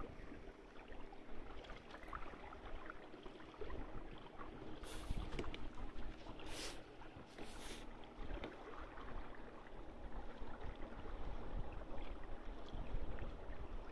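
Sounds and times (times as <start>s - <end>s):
water gurgling along boat hull: 0.0s - 13.9s
wind rumble on microphone: 4.8s - 6.4s, 9.8s - 13.9s.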